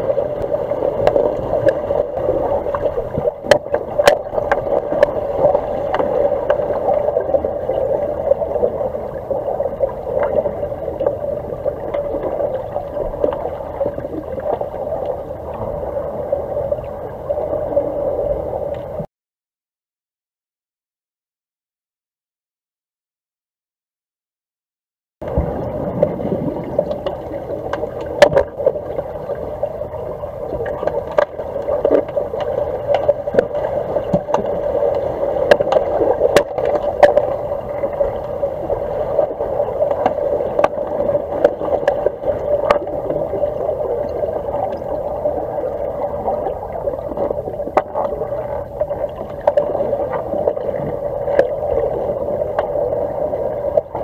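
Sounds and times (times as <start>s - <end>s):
muffled underwater rushing: 0.0s - 19.1s, 25.2s - 54.0s
sharp underwater clicks and knocks: 2.6s - 7.4s, 25.2s - 28.8s, 30.5s - 38.4s, 39.2s - 43.2s, 47.2s - 51.5s.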